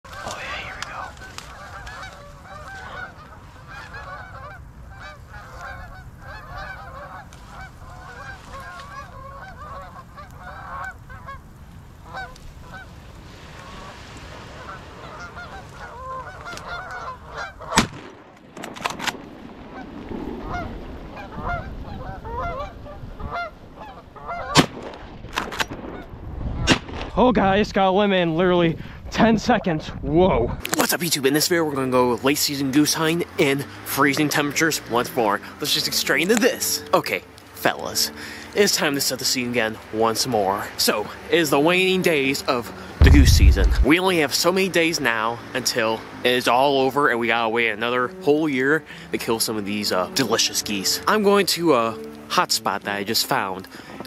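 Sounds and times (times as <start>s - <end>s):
geese honking: 0.1s - 17.9s, 20.4s - 24.6s, 31.4s - 43.9s, 45.0s - 54.0s
shotgun shots: 43.0s - 43.9s.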